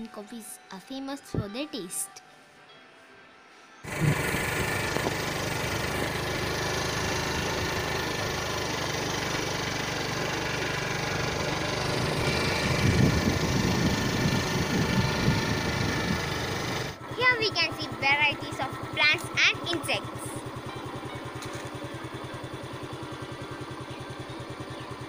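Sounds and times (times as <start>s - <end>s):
motorcycle engine running: 3.8s - 25.0s
road and wind noise: 3.9s - 22.2s.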